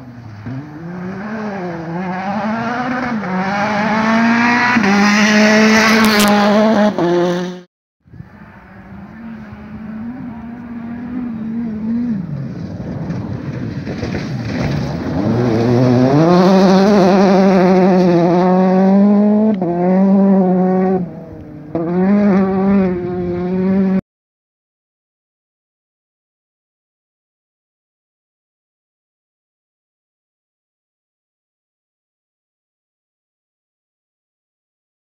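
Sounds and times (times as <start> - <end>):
rally car engine revving: 0.0 - 7.7, 8.4 - 24.0.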